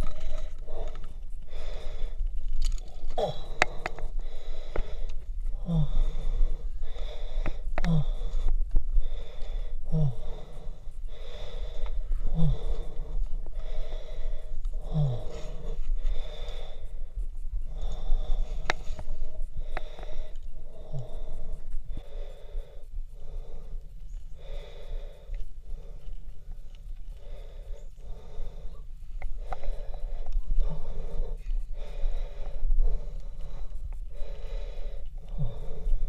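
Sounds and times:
heavy quick breathing: 0:00.0 - 0:02.3, 0:03.0 - 0:26.4, 0:27.1 - 0:36.0
sharp clicks: 0:00.0 - 0:05.4, 0:17.7 - 0:22.4
grunts of effort: 0:03.0 - 0:04.0, 0:07.8 - 0:08.5, 0:09.8 - 0:10.7, 0:14.8 - 0:15.8.

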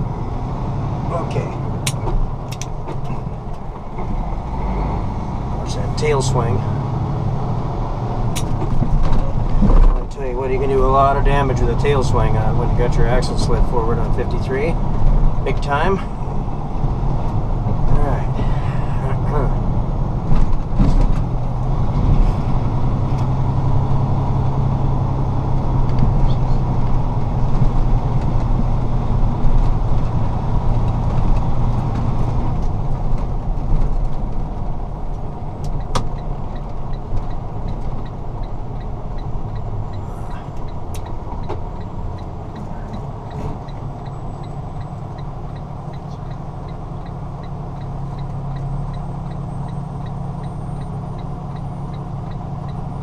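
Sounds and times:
road noise: 0:00.0 - 0:53.0
truck diesel engine: 0:00.0 - 0:53.0
faint even ticking: 0:35.1 - 0:53.0.

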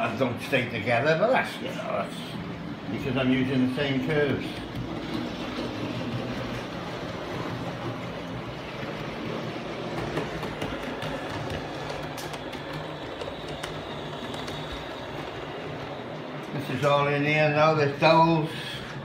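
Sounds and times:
model train whirring: 0:00.0 - 0:19.0
wheels clicking over rail joints: 0:00.0 - 0:19.0.

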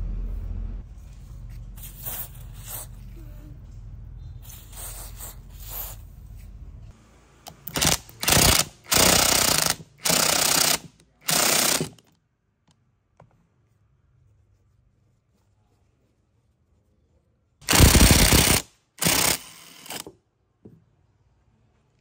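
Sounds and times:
impact wrench hammering: 0:07.7 - 0:12.0.

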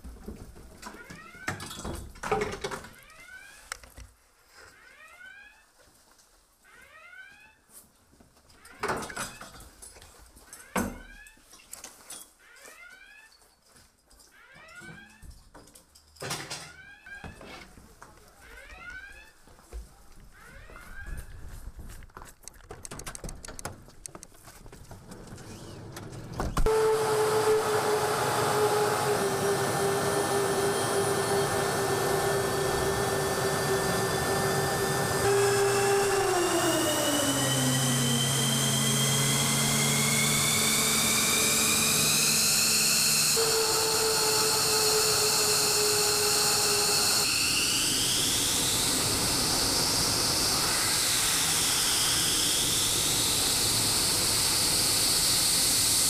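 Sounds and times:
jet engines running: 0:25.4 - 0:56.0.

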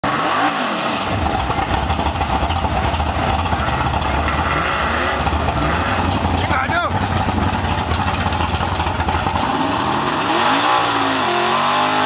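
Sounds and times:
pickup truck engine running: 0:01.0 - 0:10.4.

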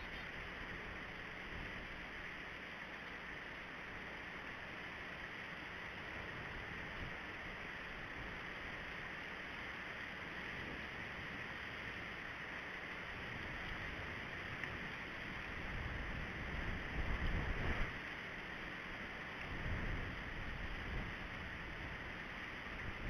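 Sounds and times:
wind buffeting microphone: 0:15.6 - 0:17.9.

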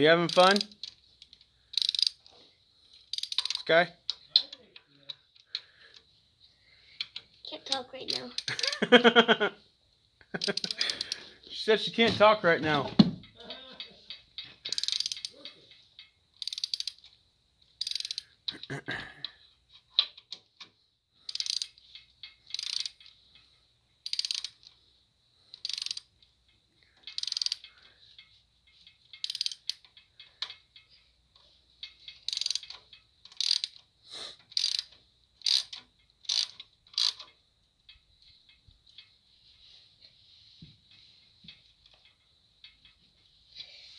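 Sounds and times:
socket ratchet clicking: 0:00.2 - 0:02.3, 0:03.0 - 0:04.5, 0:08.1 - 0:09.0, 0:10.3 - 0:11.3, 0:14.1 - 0:15.4, 0:16.0 - 0:18.7, 0:21.2 - 0:23.2, 0:24.0 - 0:24.8, 0:25.5 - 0:26.3, 0:27.0 - 0:31.0, 0:31.8 - 0:39.1.

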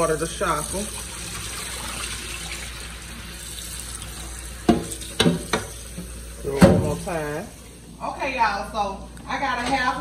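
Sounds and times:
water running from faucet: 0:00.0 - 0:07.8.

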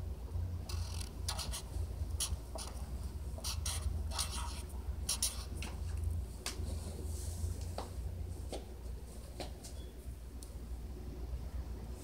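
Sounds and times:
marker scratching on paper: 0:00.7 - 0:06.0.

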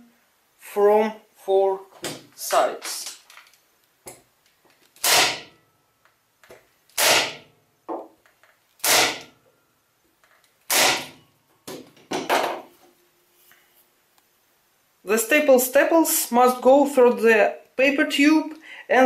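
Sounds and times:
electric staple gun firing: 0:05.0 - 0:05.5, 0:06.9 - 0:07.4, 0:08.8 - 0:09.3, 0:10.7 - 0:11.2.

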